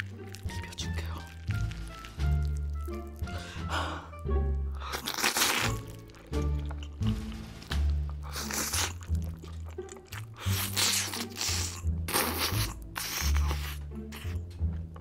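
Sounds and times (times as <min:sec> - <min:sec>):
background music with bass: 0:00.0 - 0:15.0
woman slurping and chewing: 0:04.8 - 0:07.5, 0:08.1 - 0:14.4.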